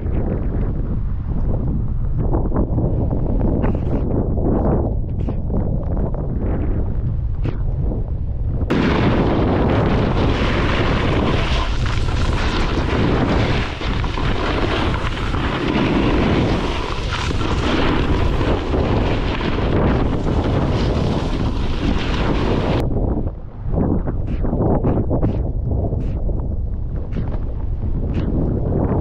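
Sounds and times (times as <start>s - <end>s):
wind buffeting microphone: 0.0s - 29.0s
snowboard scraping over snow: 8.7s - 22.8s.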